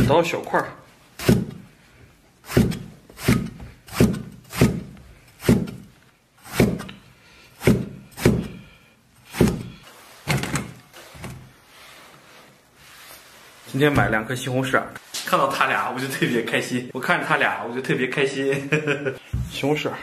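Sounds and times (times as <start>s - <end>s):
knife chopping on cutting board: 1.2s - 1.6s, 2.5s - 7.0s, 7.6s - 8.6s, 9.3s - 9.8s.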